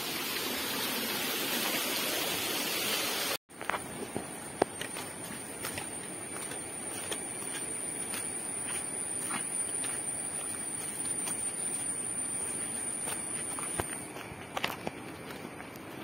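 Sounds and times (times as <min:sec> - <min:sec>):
footsteps on muddy trail: 0:03.5 - 0:16.0.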